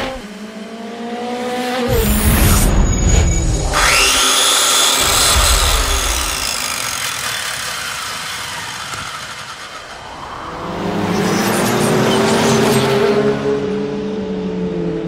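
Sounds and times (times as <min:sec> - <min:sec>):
dense whooshing rush: 0:09.8 - 0:12.0.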